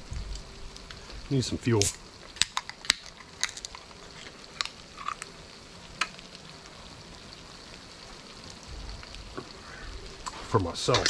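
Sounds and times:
noodles sizzling faintly in a wok: 0:00.0 - 0:11.0.

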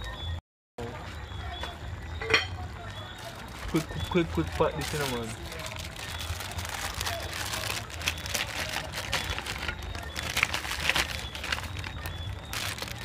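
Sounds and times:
crackers crackling in skillet: 0:02.8 - 0:13.0
plastic packet crinkling: 0:03.2 - 0:13.0.

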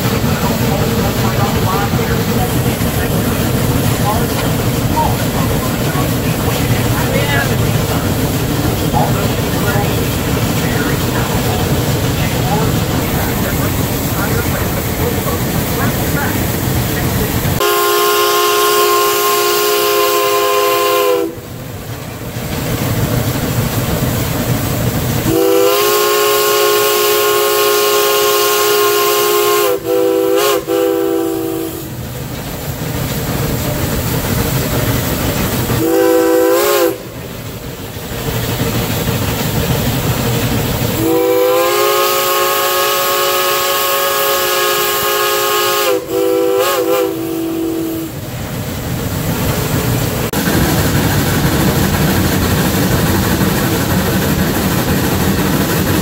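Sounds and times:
locomotive rumble and hiss: 0:00.0 - 0:56.0
steam whistle blasts: 0:17.6 - 0:21.4, 0:25.3 - 0:31.9, 0:35.8 - 0:37.1, 0:41.0 - 0:48.2.

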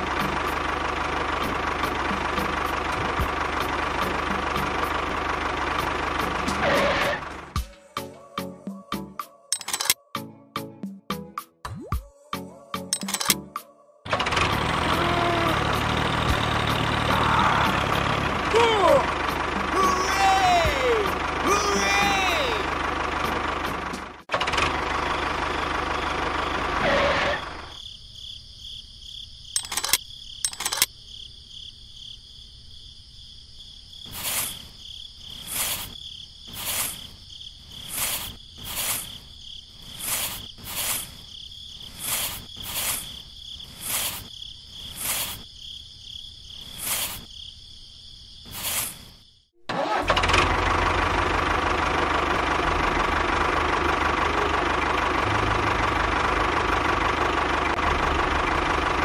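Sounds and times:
toy tractor engine sound: 0:00.0 - 0:07.6, 0:09.6 - 0:10.0, 0:13.0 - 0:13.4, 0:14.1 - 0:27.7, 0:29.6 - 0:30.9, 0:34.1 - 0:34.6, 0:35.4 - 0:37.0, 0:37.8 - 0:39.2, 0:39.9 - 0:41.2, 0:41.8 - 0:44.3, 0:44.9 - 0:45.4, 0:48.5 - 0:49.0, 0:49.7 - 0:59.0
sharp clicks: 0:09.5 - 0:10.0, 0:13.0 - 0:13.4, 0:29.6 - 0:30.9
shovel swishing sand: 0:34.1 - 0:34.6, 0:35.4 - 0:37.1, 0:37.8 - 0:39.2, 0:39.8 - 0:41.2, 0:41.9 - 0:44.3, 0:44.9 - 0:45.4, 0:46.7 - 0:47.3, 0:48.5 - 0:49.1.

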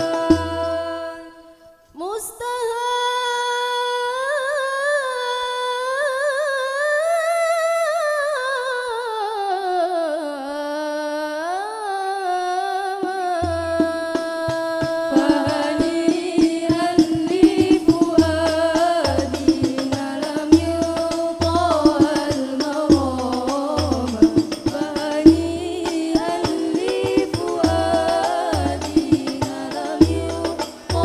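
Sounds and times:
frame drums: 0:00.0 - 0:00.9, 0:13.4 - 0:31.0
woman singing: 0:00.0 - 0:31.0.

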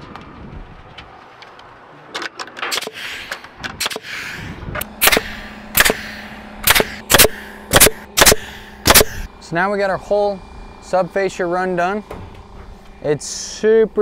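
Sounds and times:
nail gun shots into wood: 0:02.6 - 0:04.1, 0:05.0 - 0:09.3.

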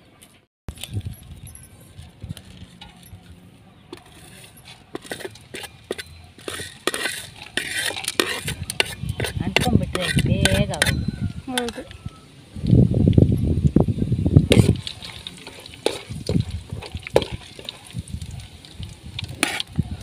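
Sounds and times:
metal spoon scraping steel plate: 0:03.9 - 0:12.0, 0:14.5 - 0:17.9, 0:19.3 - 0:19.7
spices rattling into metal pan: 0:14.5 - 0:19.7.

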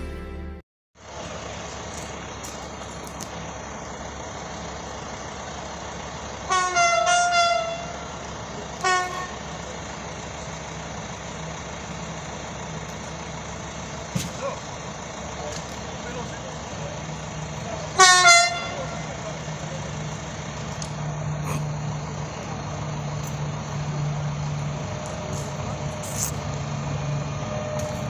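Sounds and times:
outdoor background noise: 0:01.0 - 0:28.0
train horn blasts: 0:06.5 - 0:08.1, 0:08.8 - 0:09.5, 0:17.9 - 0:19.1.

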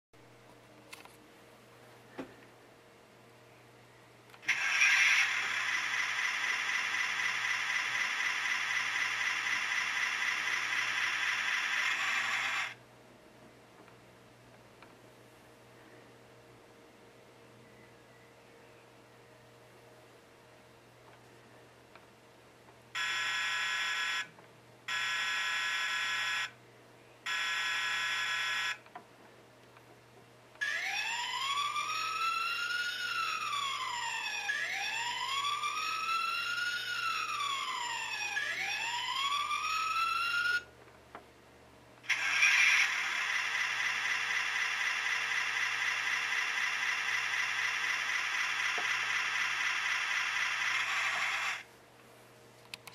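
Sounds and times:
fast-wavering siren tone: 0:04.5 - 0:12.8, 0:30.6 - 0:40.7, 0:42.1 - 0:51.6
wailing siren: 0:04.5 - 0:12.8, 0:30.6 - 0:40.7.

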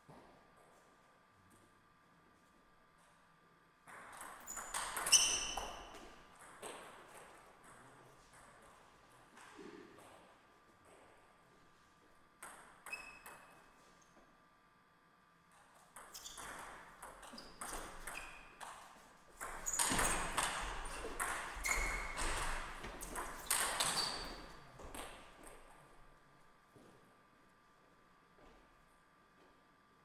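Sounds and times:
table tennis ball clicking and bouncing: 0:03.8 - 0:07.8, 0:12.4 - 0:13.7, 0:15.8 - 0:25.7.

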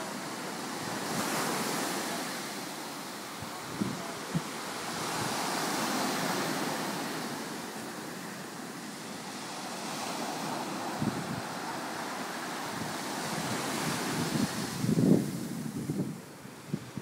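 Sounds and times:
ocean surf breaking: 0:00.0 - 0:17.0
wind buffeting microphone: 0:03.4 - 0:07.4, 0:09.4 - 0:17.0.

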